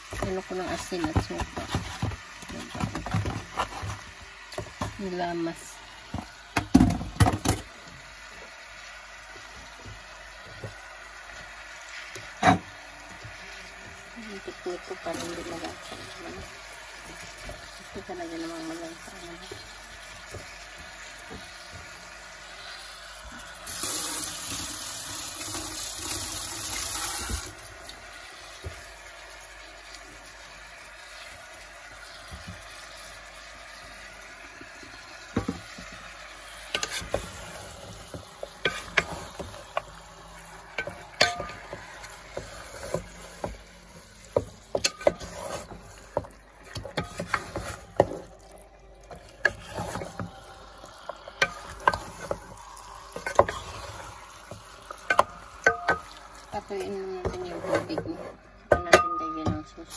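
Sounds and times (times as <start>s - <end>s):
wooden spoon scraping a pot: 0.1s - 4.8s, 36.6s - 58.5s.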